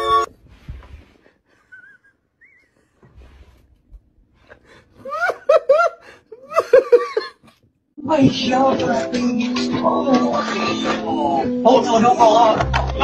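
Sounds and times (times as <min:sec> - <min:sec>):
person laughing hard: 0:01.6 - 0:02.2, 0:05.0 - 0:07.6.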